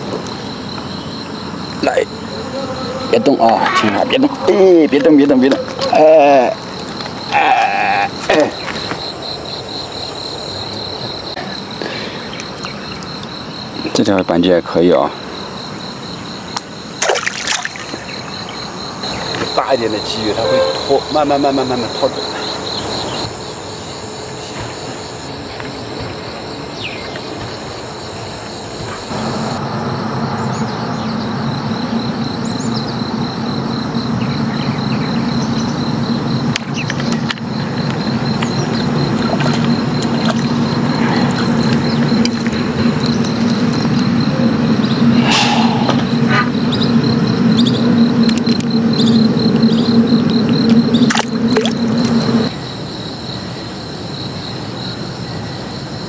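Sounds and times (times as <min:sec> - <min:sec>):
insects chirring: 0:00.0 - 0:56.0
low motor hum: 0:25.5 - 0:52.5.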